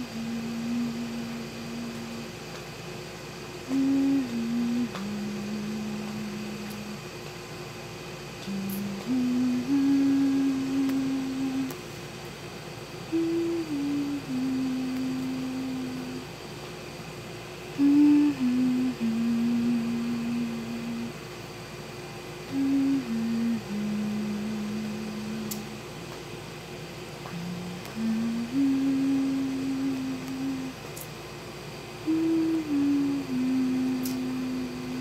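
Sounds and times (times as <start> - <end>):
person humming a lullaby: 0.0 - 2.4, 3.6 - 7.1, 8.4 - 11.8, 13.1 - 16.4, 17.7 - 21.2, 22.4 - 25.9, 27.2 - 31.1, 32.0 - 35.0.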